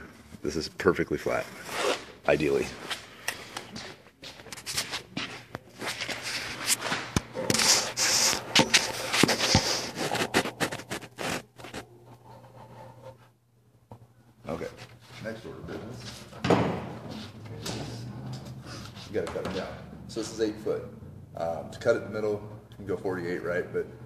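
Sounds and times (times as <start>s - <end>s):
steady low hum: 0.0s - 24.0s
panels and cardboard being handled: 1.3s - 13.4s, 14.4s - 19.9s.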